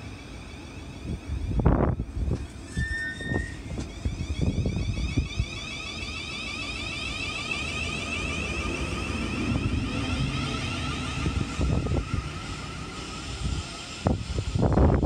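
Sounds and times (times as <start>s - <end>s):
electric train traction whine: 0.0s - 15.0s
wheels rumbling on rail: 0.0s - 15.0s
wind buffeting microphone: 1.1s - 2.7s, 3.3s - 5.6s, 8.8s - 15.0s.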